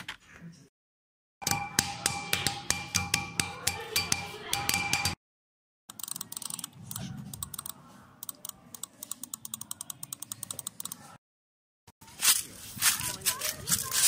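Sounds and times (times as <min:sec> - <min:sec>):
computer keyboard typing: 0:05.9 - 0:11.1.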